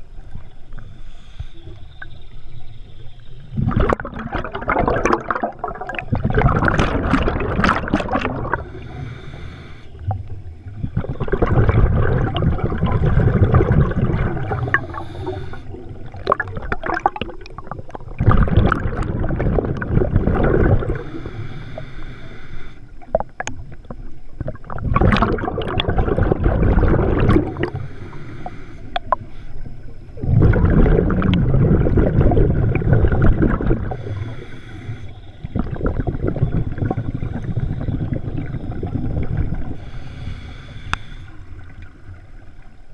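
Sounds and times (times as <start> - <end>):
hissing regulator inhalations: 0.8 - 2.3, 8.5 - 10.1, 14.4 - 16.2, 20.9 - 23.1, 27.4 - 30.2, 33.9 - 35.6, 37.2 - 41.7
exhaled bubbles bursting underwater: 3.2 - 9.1, 9.9 - 21.4, 23.0 - 28.2, 28.9 - 40.0.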